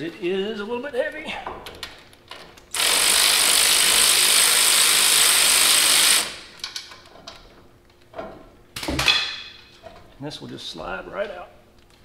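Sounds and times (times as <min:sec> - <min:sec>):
cordless ratchet running: 0:02.7 - 0:06.6.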